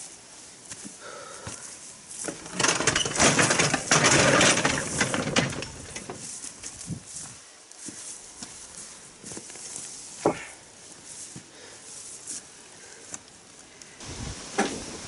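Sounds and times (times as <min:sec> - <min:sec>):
hand cart rattling over rough ground: 0:02.1 - 0:08.2.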